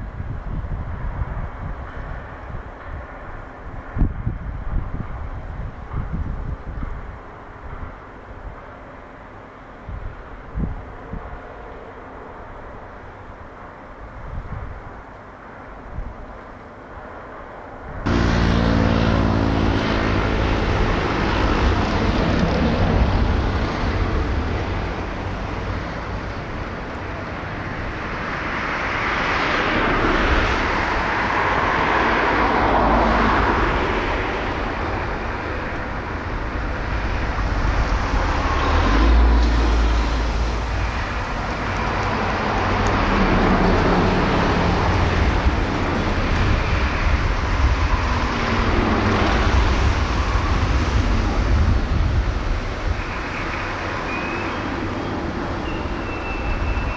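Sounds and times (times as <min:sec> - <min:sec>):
vehicle passing: 0:18.0 - 0:56.0.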